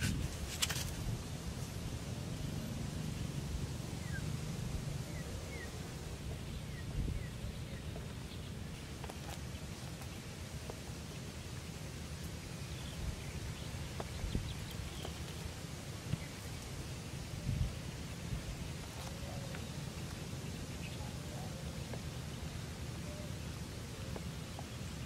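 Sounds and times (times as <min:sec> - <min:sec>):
light rustles and clicks: 0:00.0 - 0:01.1
wind rumble on microphone: 0:00.0 - 0:08.8, 0:12.8 - 0:15.1, 0:17.2 - 0:18.9.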